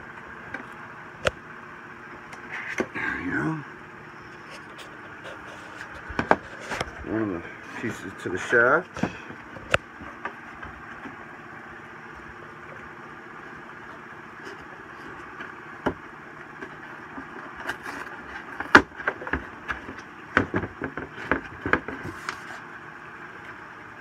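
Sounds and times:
steady mechanical hum: 0.0 - 24.0
clicks knocks and scrapes: 4.4 - 7.1, 16.6 - 22.6.

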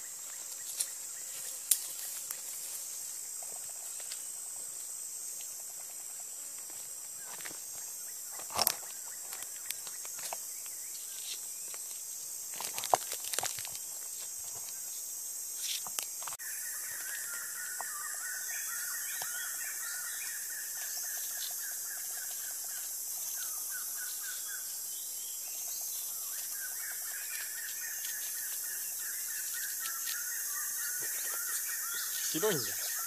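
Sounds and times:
steady high hiss: 18.5 - 33.0.

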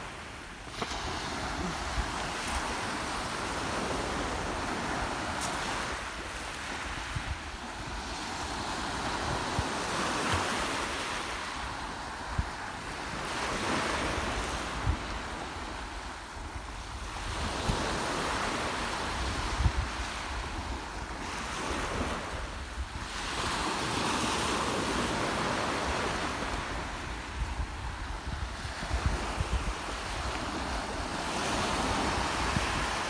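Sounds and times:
waves breaking on pebble beach: 0.0 - 11.5
wind buffeting microphone: 11.6 - 33.0.

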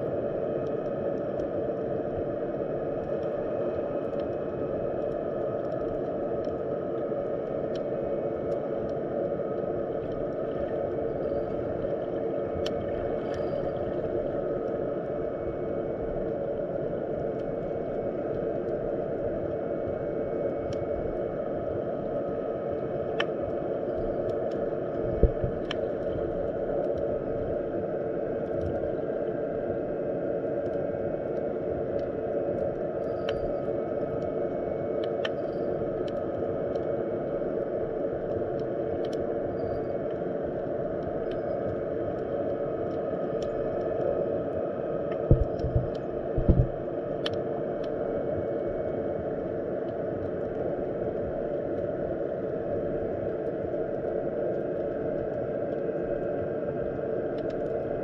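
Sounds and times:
faint hum: 0.0 - 58.0
low knock: 45.3 - 46.7
small clicks: 57.3 - 57.8.

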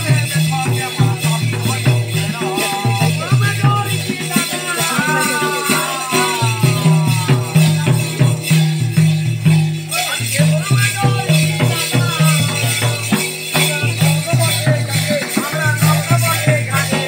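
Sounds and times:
jingling rattling percussion: 0.0 - 17.0.

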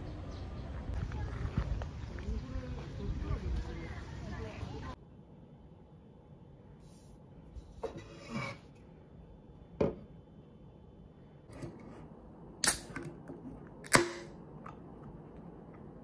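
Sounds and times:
can pull tab snapping: 12.6 - 13.2, 13.8 - 14.8.

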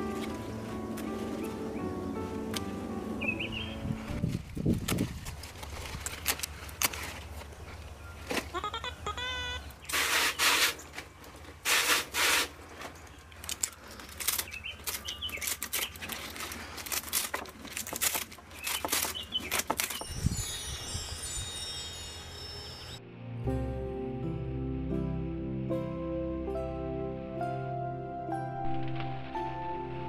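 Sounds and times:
leaves rustling: 0.0 - 8.6, 9.7 - 22.1
high sparkly chime: 20.0 - 23.0.

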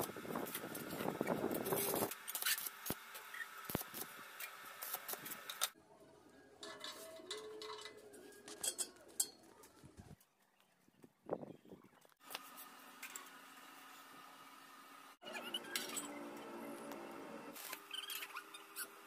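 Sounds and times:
metallic clinks of steel parts: 6.6 - 9.5.

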